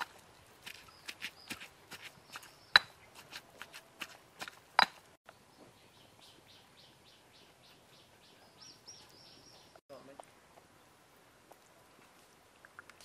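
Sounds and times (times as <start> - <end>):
bird chirps: 5.3 - 9.8.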